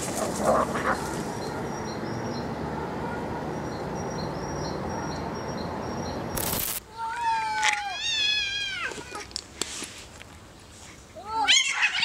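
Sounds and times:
rough noise: 6.3 - 6.8.

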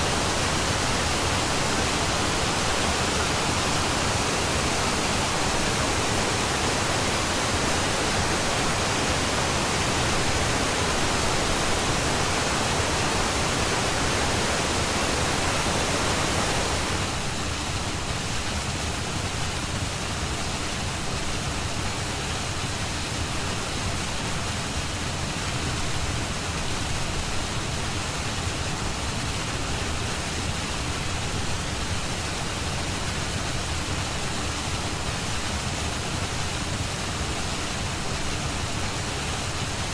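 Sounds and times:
steady rushing noise: 0.0 - 39.9.

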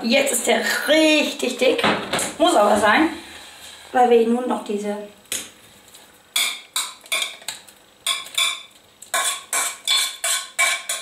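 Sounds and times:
metal spoon scraping steel bowl: 8.1 - 11.0.

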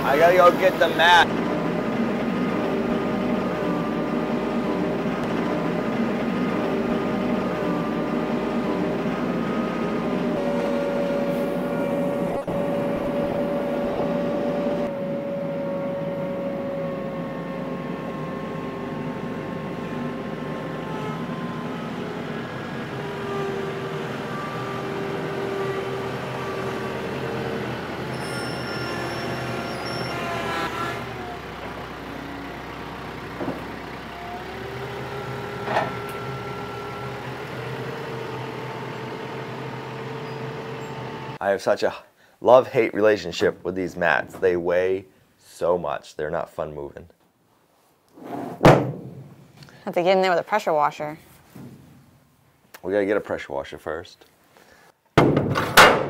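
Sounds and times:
engine running steadily: 0.0 - 41.4.

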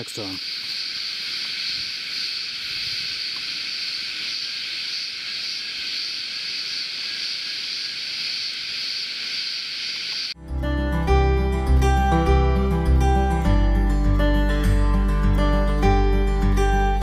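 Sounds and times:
insects chorus: 0.0 - 10.4.

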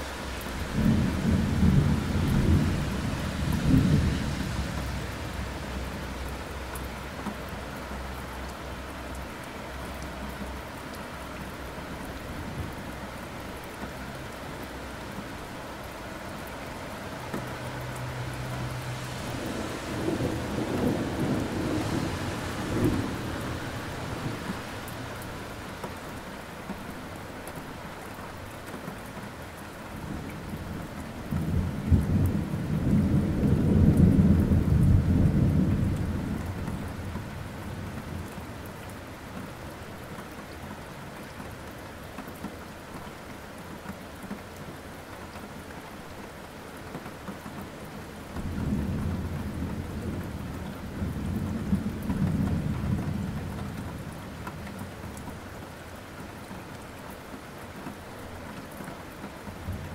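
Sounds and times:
steady rain: 0.0 - 59.9
rolling thunder: 0.7 - 4.9, 19.2 - 24.8.

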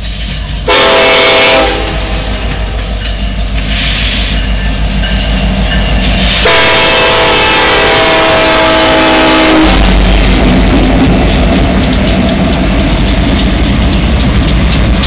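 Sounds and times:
locomotive engines and wheels rumbling: 0.0 - 15.0
train air horn chord: 0.7 - 2.8, 6.4 - 9.8.

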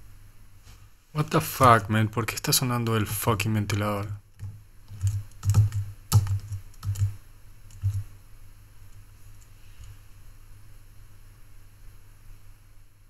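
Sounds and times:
faint fan hum and hiss: 0.0 - 13.0
irregular clicks and knocks: 4.4 - 8.1.

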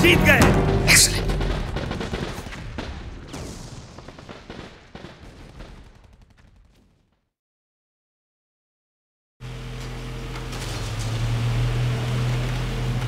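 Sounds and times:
rapid gunfire: 0.4 - 7.2.

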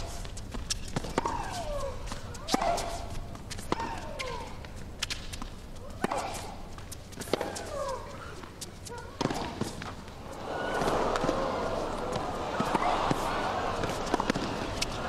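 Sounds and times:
tennis ball bouncing: 0.8 - 5.2, 5.9 - 7.9, 8.9 - 15.0
tennis ball struck by rackets: 9.2 - 15.0.

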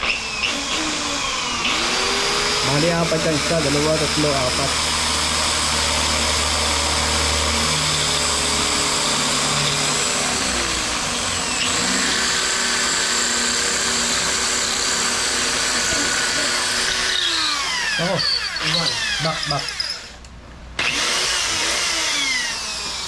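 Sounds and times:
electric drill boring: 0.0 - 23.0.

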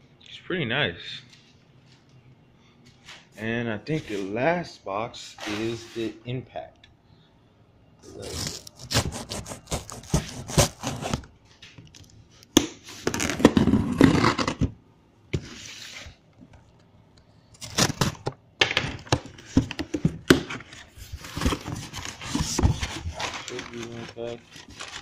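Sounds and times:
cardboard box scraping and tearing: 8.1 - 11.3, 13.1 - 14.6, 21.0 - 25.0.

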